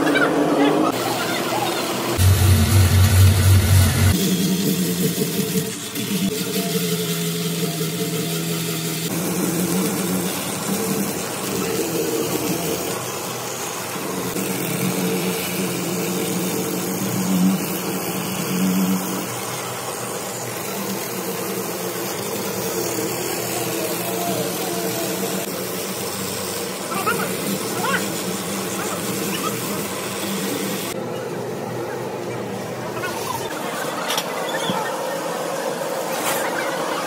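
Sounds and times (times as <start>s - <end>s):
tyre buffer motor grinding rubber: 0.0s - 31.0s.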